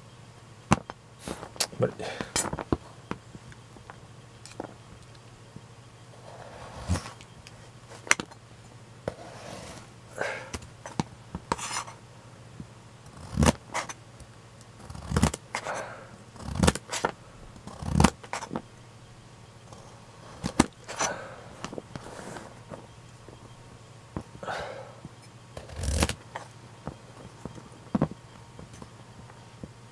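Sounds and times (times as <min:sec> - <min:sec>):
knife scraping: 0:11.5 - 0:12.0.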